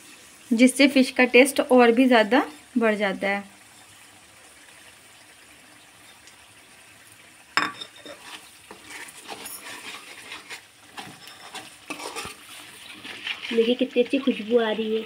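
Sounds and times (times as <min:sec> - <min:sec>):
light sizzle: 0:00.0 - 0:15.0
spoon clinking on pan: 0:07.6 - 0:08.2
spoon scraping pan: 0:07.6 - 0:14.6
spoon stirring in pan: 0:07.6 - 0:14.6.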